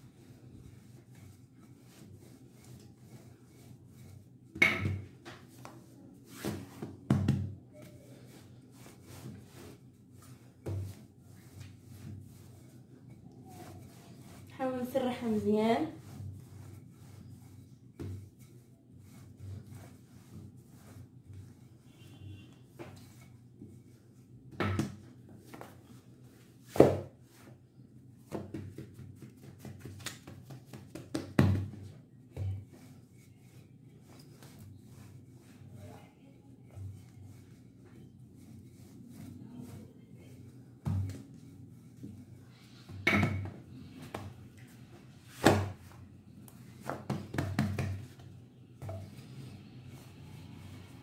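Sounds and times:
dough rubbing and handling: 0:00.0 - 0:51.0
rolling pin knocking on stone countertop: 0:04.6 - 0:05.1.

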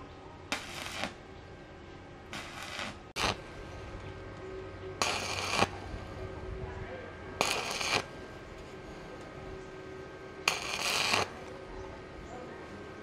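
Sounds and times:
low steady hum: 0:00.0 - 0:13.0
welding arc crackling: 0:00.5 - 0:01.3, 0:02.2 - 0:04.1, 0:05.0 - 0:05.9, 0:07.4 - 0:08.8, 0:10.0 - 0:11.7.

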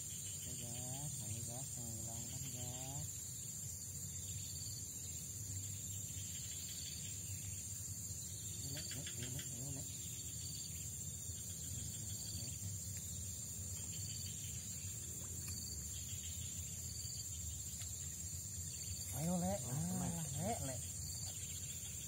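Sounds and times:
insect trilling: 0:00.0 - 0:22.0.

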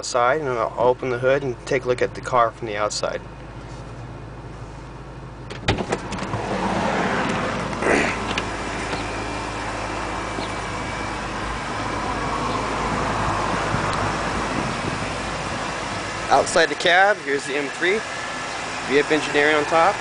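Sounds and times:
car engine idling: 0:00.0 - 0:20.0
car door shutting: 0:05.4 - 0:09.2
car door latch clicking: 0:05.5 - 0:06.5.

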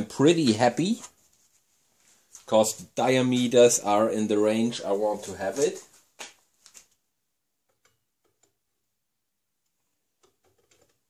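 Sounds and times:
faint clicks and taps of tools: 0:07.6 - 0:08.6.

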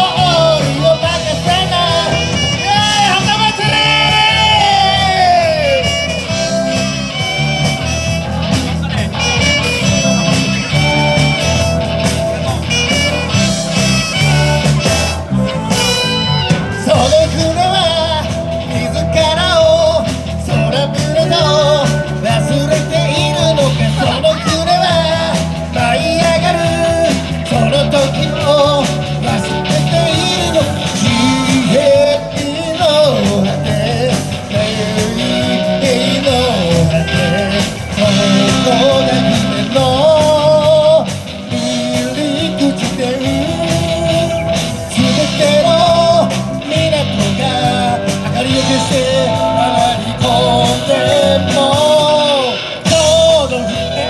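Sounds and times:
person singing: 0:00.0 - 0:54.0
rock band playing: 0:00.0 - 0:54.0.

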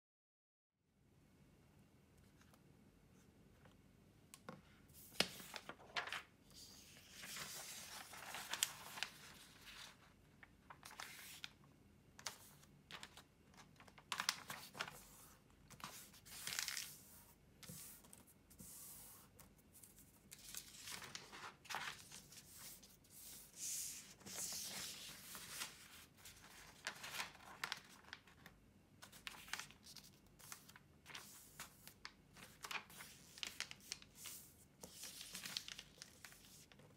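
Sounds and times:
paper rustling and crackling: 0:05.0 - 0:11.6, 0:12.2 - 0:18.1, 0:19.8 - 0:36.9.

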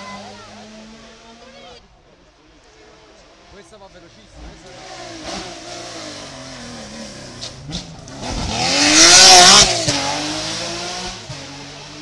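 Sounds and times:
rally car engine passing by: 0:04.3 - 0:12.0
exhaust pops: 0:07.2 - 0:10.0.

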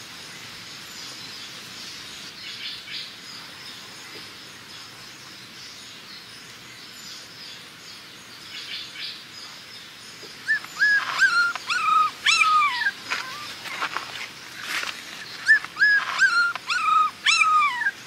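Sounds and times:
puppies whimpering: 0:10.5 - 0:13.9, 0:15.4 - 0:18.0.

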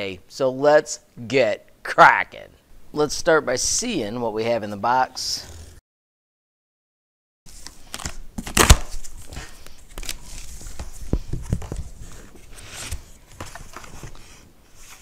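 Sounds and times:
packing tape tearing: 0:07.9 - 0:09.2
cardboard flaps crackling and knocking: 0:08.0 - 0:12.4.

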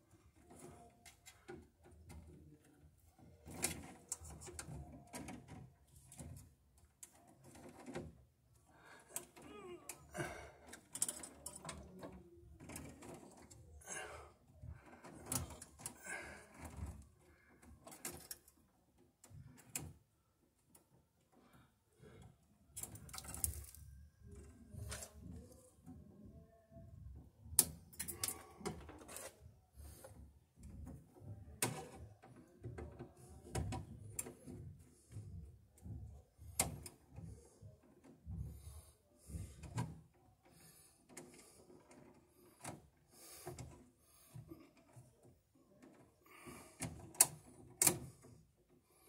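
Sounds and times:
wire and metal clicks and scrapes: 0:00.1 - 0:08.3, 0:09.0 - 0:14.0, 0:14.6 - 0:20.0, 0:22.7 - 0:26.0, 0:27.6 - 0:48.5.

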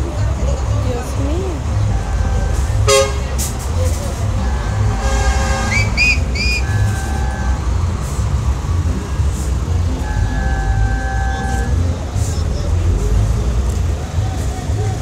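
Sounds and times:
heavy street traffic rumble: 0:00.0 - 0:15.0
short rising and falling whistles: 0:05.7 - 0:06.9.

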